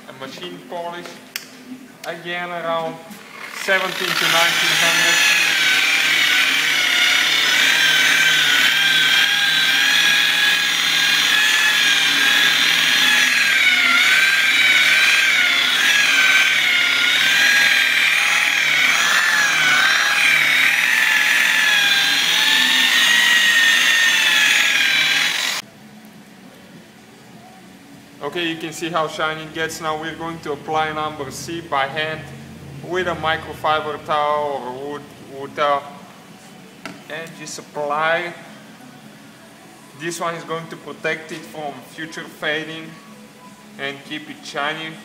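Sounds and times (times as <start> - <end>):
electric buffer whining: 2.7 - 25.7.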